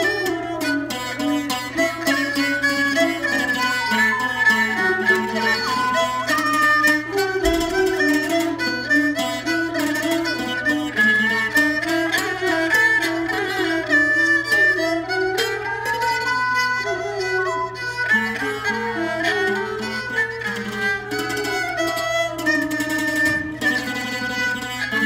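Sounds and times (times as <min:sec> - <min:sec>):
plucked floor zither: 0:00.0 - 0:14.8
bowed fiddle melody: 0:00.0 - 0:25.0.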